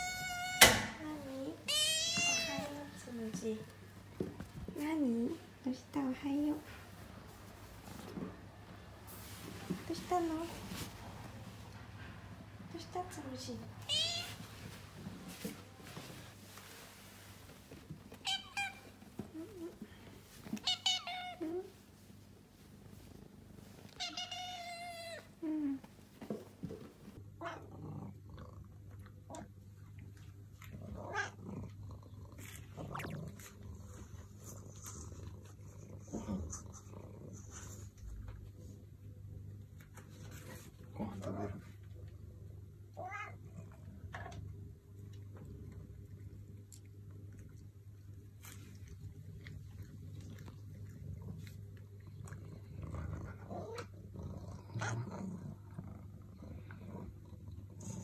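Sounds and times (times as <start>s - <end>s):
cat growling: 30.6s - 34.0s, 49.2s - 58.0s
cat vocalizing: 32.4s - 33.5s.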